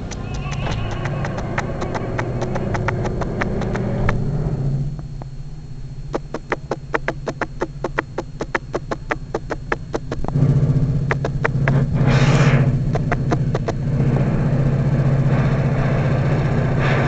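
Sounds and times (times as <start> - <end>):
rapid even clicking: 0.0 - 4.2, 6.1 - 12.0, 12.8 - 13.8
locomotive low hum: 0.0 - 17.0.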